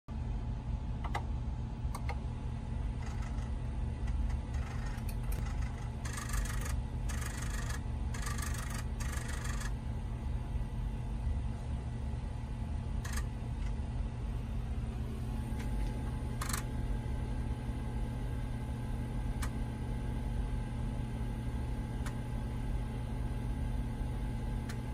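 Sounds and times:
floppy drive motor hum: 0.1s - 24.9s.

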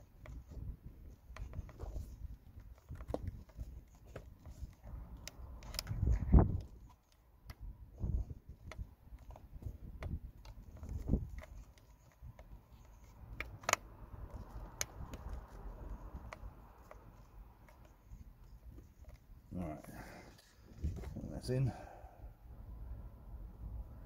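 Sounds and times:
wind buffeting microphone: 5.8s - 6.9s, 7.6s - 8.9s, 9.5s - 11.4s
plastic clicks and taps: 8.5s - 18.1s.

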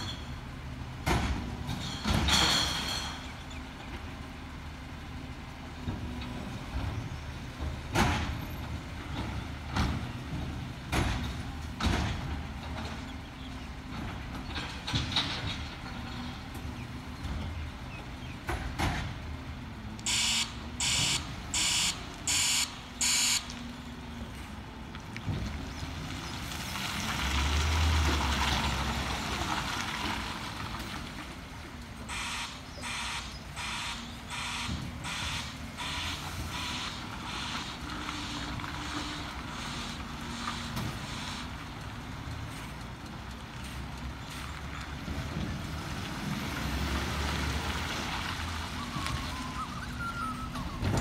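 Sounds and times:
truck reversing alarm pulses: 20.0s - 23.6s, 32.1s - 41.5s
truck engine running: 31.2s - 44.6s.

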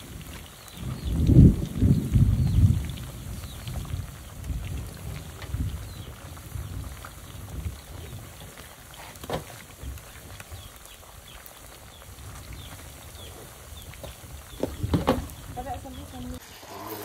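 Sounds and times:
frying in bubbling syrup: 0.0s - 17.0s
animal call: 16.6s - 17.0s.

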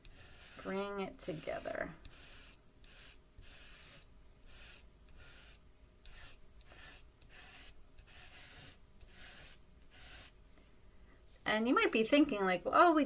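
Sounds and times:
chalk pastel scratching paper: 0.0s - 10.4s.

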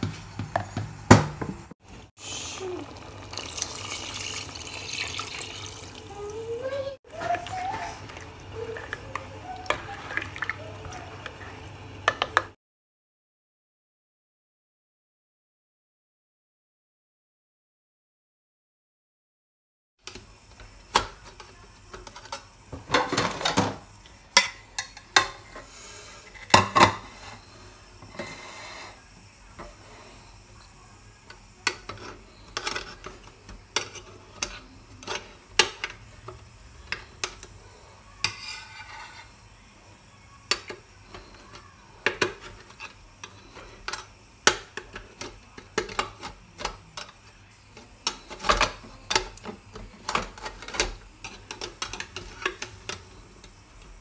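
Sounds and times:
metal spoon scraping steel: 38.2s - 39.4s.

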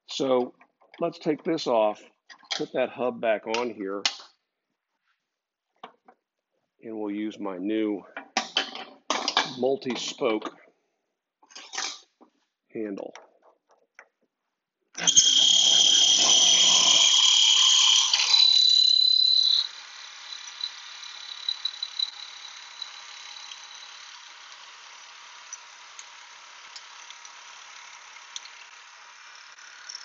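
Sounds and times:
woodworking machine high-pitched whine: 15.0s - 30.0s
small clicks: 28.1s - 28.7s.

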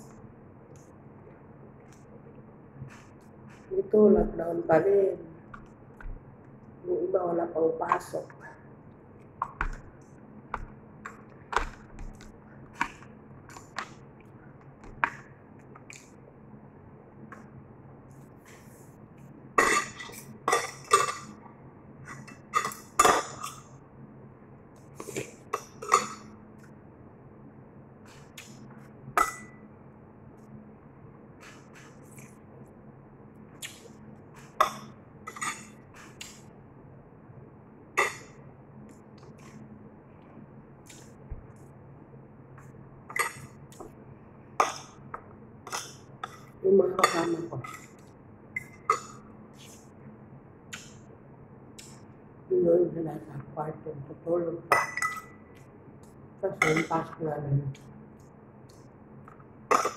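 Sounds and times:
metal spoon clinking on plate: 54.7s - 55.4s.

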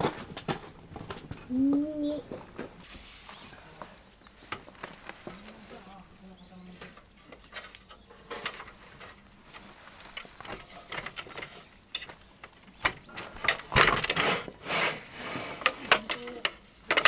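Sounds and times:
metal frame joints clicking: 7.0s - 14.3s, 15.6s - 17.0s
wooden slats clacking: 10.1s - 14.5s, 15.6s - 17.0s.

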